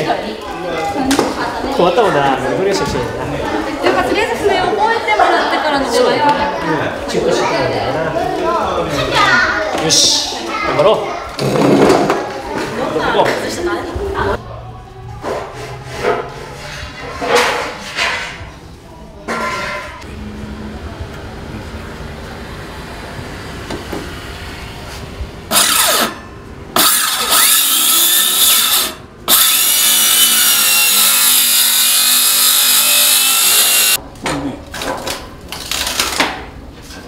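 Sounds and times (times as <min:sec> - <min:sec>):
circular saw cutting wood: 0:25.5 - 0:34.0.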